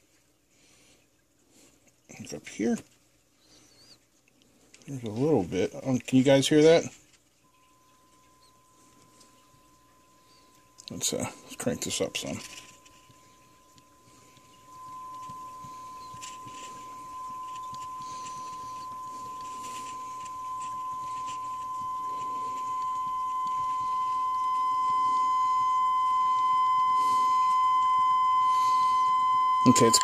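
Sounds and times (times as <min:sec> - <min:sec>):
sine-wave test tone from speaker: 0:07.4 - 0:30.0.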